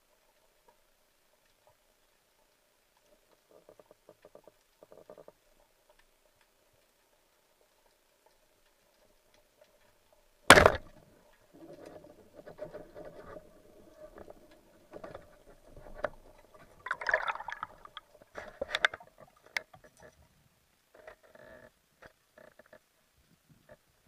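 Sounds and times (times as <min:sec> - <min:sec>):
underwater water noise: 0:00.0 - 0:21.1
bubbling and splashing: 0:13.4 - 0:19.6.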